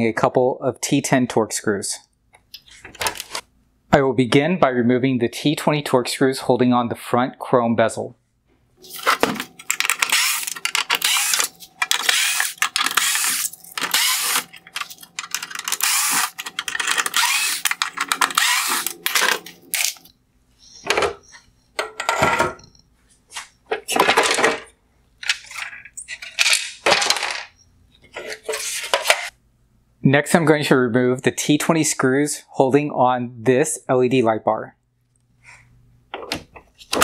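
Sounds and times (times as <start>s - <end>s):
screwdriver rapid clicking and rattling: 9.6s - 20.0s.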